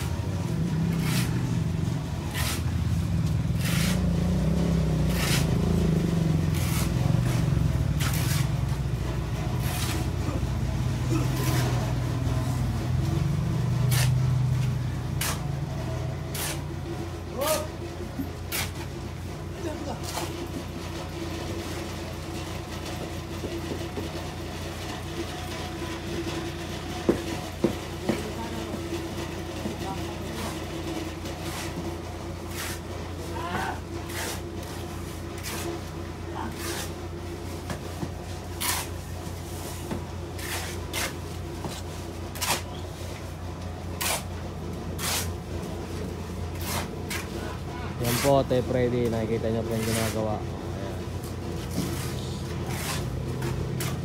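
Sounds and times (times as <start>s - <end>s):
low motor hum: 0.0s - 33.1s
knocks and scrapes: 0.0s - 54.0s.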